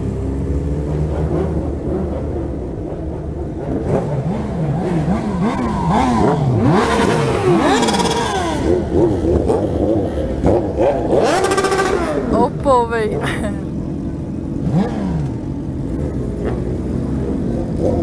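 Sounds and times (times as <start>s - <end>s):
motorcycle engines revving: 0.0s - 18.0s.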